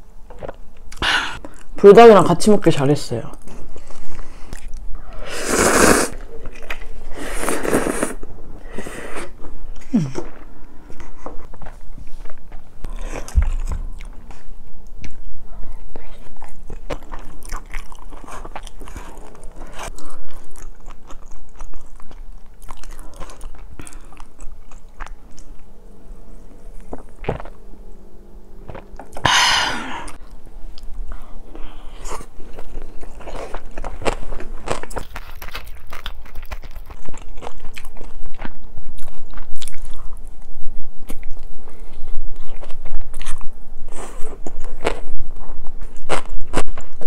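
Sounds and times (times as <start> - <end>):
chewing and biting food: 3.4 - 4.9, 11.0 - 25.7, 26.8 - 27.6, 30.1 - 43.6, 44.2 - 47.0.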